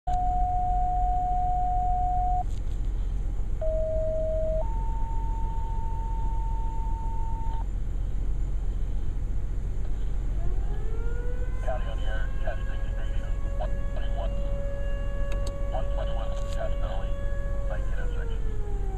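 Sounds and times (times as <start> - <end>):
radio paging tones: 0.1 - 2.5, 3.6 - 7.6, 11.6 - 14.5, 15.4 - 17.1.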